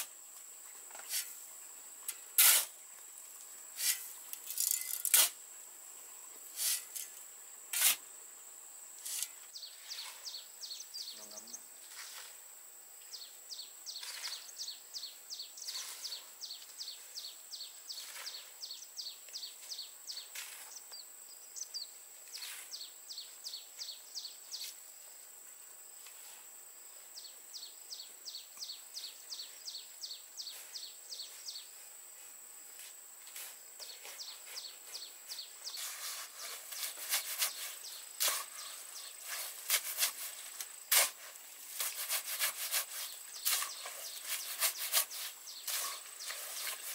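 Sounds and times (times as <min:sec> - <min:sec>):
shovel scraping cement mix: 0:01.0 - 0:01.4, 0:02.3 - 0:02.8, 0:03.8 - 0:05.4, 0:06.6 - 0:07.1, 0:07.7 - 0:08.0, 0:09.0 - 0:10.2, 0:11.8 - 0:12.4, 0:14.0 - 0:14.5, 0:15.6 - 0:16.3, 0:18.0 - 0:18.5, 0:20.2 - 0:20.8, 0:22.4 - 0:22.8, 0:35.7 - 0:46.9.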